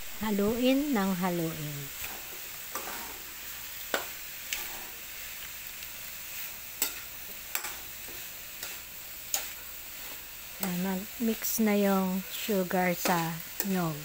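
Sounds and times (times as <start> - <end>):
faint sizzle in a wok: 0.0 - 14.0
metal spatula striking pan: 6.8 - 7.8.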